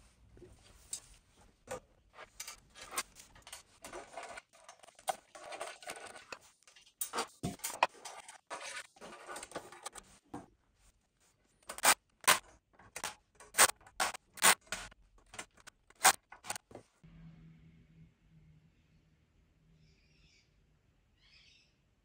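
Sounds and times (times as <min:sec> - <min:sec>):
sharp clicks and scrapes: 0:01.7 - 0:10.1, 0:11.6 - 0:16.7.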